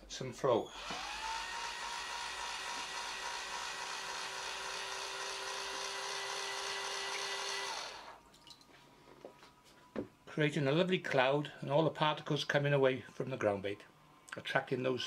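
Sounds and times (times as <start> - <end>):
electric drill whining: 0.6 - 8.2.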